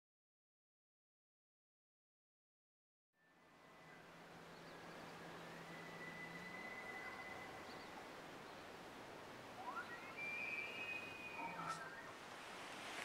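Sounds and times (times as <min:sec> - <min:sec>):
faint high whistle: 0:05.4 - 0:08.0, 0:09.6 - 0:12.2
elk bugling: 0:09.6 - 0:12.2.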